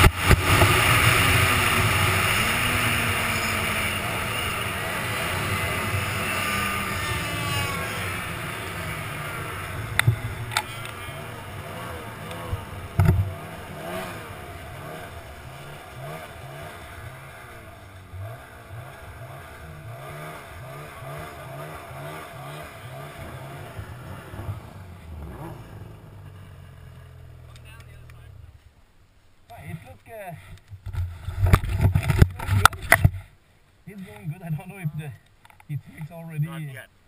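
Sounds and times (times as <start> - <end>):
snowmobile engine slowing: 0.0 - 28.6.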